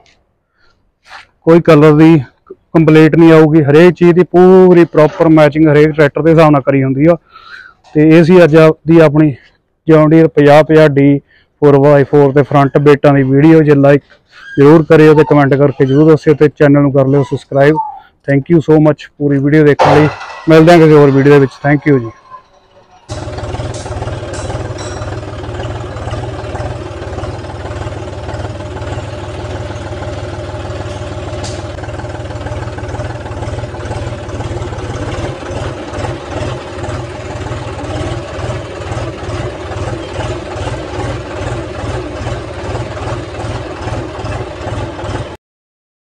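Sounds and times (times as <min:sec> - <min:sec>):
tractor diesel engine running: 0:23.0 - 0:45.4.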